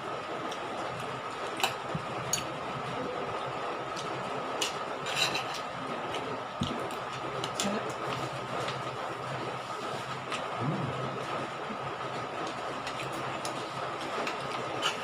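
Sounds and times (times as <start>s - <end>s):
background hum: 0.0s - 15.0s
cutlery clinking on plates: 5.1s - 5.6s.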